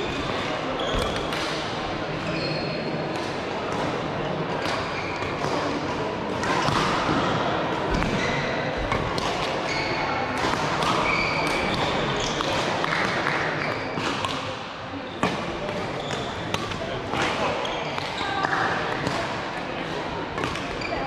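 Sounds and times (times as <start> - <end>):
voices echoing in hall: 0.0 - 21.0
shoes squeaking on floor: 2.2 - 2.9, 9.7 - 10.0, 11.0 - 12.4, 15.9 - 16.5, 20.8 - 21.0.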